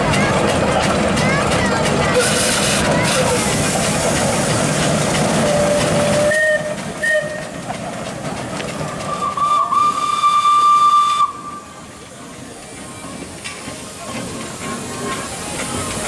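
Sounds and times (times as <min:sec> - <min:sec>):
steam hissing: 0:00.4 - 0:16.0
steam whistle blast: 0:05.6 - 0:07.4, 0:09.2 - 0:11.6.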